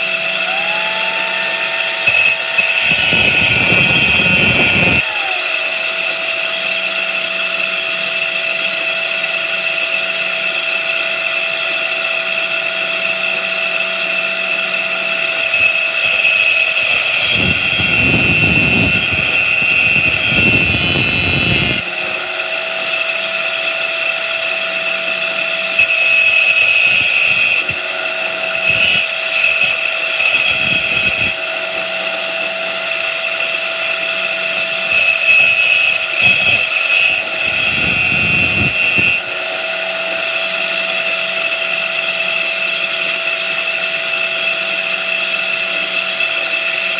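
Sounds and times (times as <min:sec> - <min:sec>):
angle grinder high whine: 0:00.0 - 0:46.9
rough grinding of steel rod: 0:01.5 - 0:05.0, 0:15.1 - 0:39.3.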